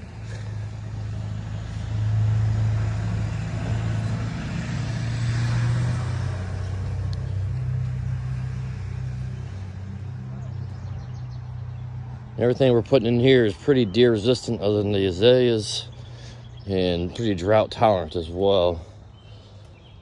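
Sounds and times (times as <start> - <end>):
vehicle engine idling: 0.0 - 20.0.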